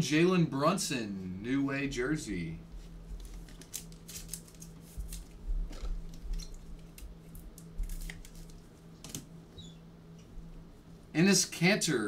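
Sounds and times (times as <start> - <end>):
faint steady hum: 0.0 - 12.0
cards and packaging rustling: 2.8 - 9.3.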